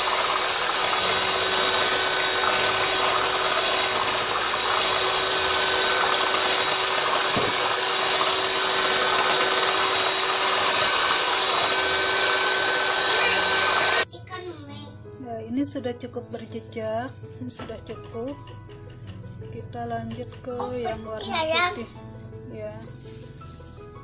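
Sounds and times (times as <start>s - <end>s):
stick blender motor whine: 0.0s - 14.1s.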